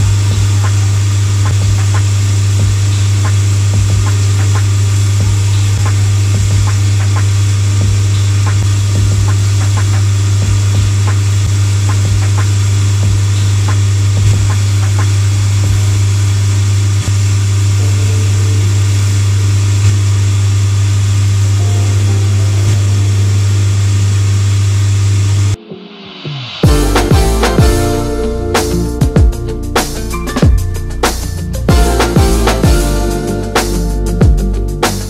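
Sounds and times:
finishing machine humming: 0:26.6 - 0:35.0.

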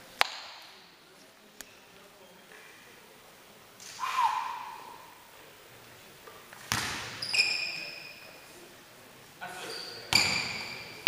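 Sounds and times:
basketball bouncing on wooden floor: 0:06.7 - 0:07.1
brief squeak: 0:07.2 - 0:08.4, 0:09.6 - 0:10.9.

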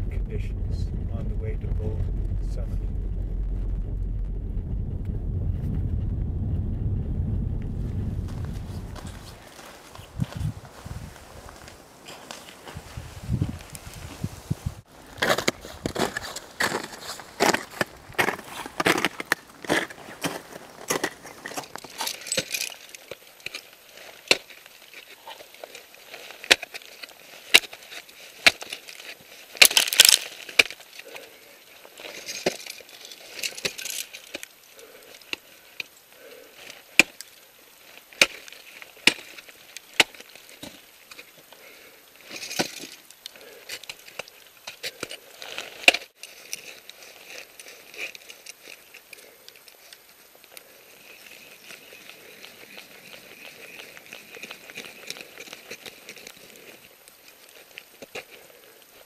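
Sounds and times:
ice axe and crampons striking ice: 0:15.2 - 0:30.9, 0:32.1 - 0:34.5, 0:37.0 - 0:37.3, 0:38.2 - 0:40.9.

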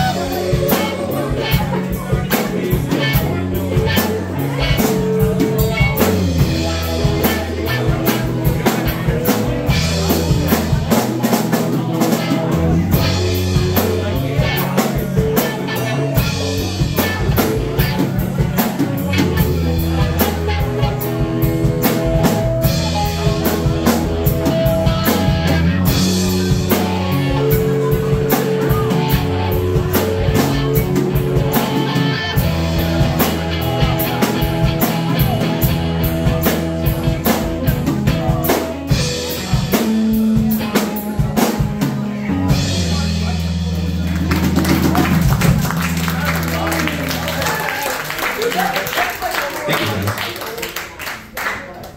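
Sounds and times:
live rock band playing: 0:00.0 - 0:51.3
drum beat: 0:44.2 - 0:48.4.

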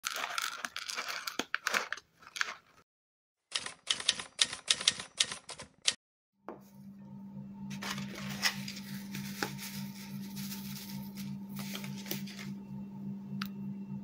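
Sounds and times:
typewriter keys clacking: 0:03.5 - 0:06.0.

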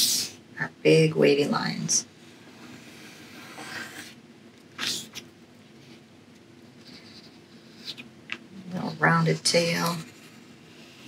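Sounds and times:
pencil scratching on paper: 0:09.6 - 0:11.0.

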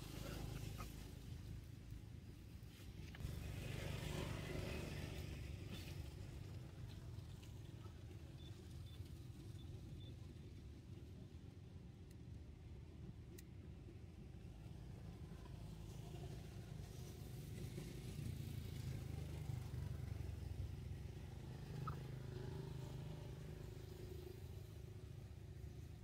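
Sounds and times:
distant vehicle rumble: 0:18.4 - 0:23.0.

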